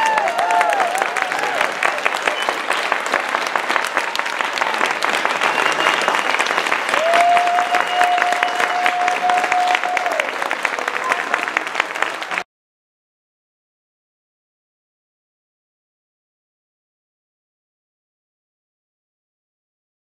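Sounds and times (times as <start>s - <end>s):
crowd applauding: 0.0s - 12.5s.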